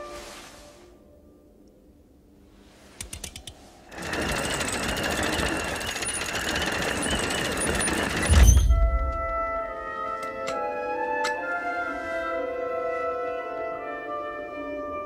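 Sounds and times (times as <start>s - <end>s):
clicks: 3.0s - 3.6s
metal mechanism rattling: 3.0s - 9.4s
steady mechanical whine: 3.9s - 9.7s.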